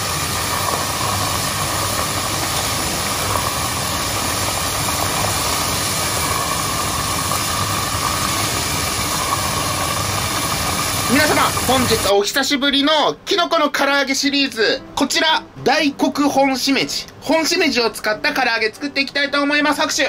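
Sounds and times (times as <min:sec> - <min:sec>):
oil sizzling and bubbling: 0:00.0 - 0:12.2.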